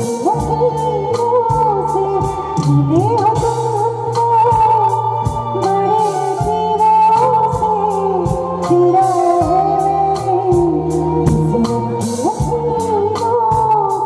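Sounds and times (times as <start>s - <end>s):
bass line: 0.0s - 14.0s
live band playing: 0.0s - 14.0s
drum beat: 11.3s - 11.8s.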